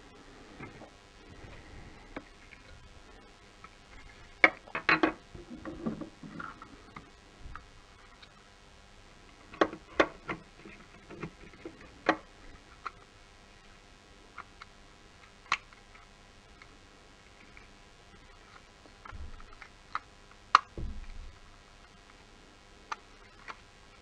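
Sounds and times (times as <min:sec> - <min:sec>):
plastic parts clicking and knocking: 0:04.4 - 0:08.3, 0:09.5 - 0:13.0.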